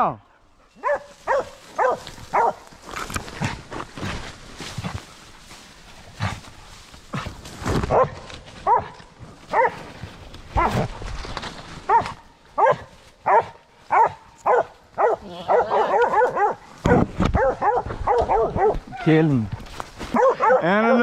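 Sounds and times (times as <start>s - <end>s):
dog barking: 0.8s - 2.7s, 7.9s - 9.8s, 10.6s - 10.9s, 11.9s - 18.9s, 20.1s - 21.0s.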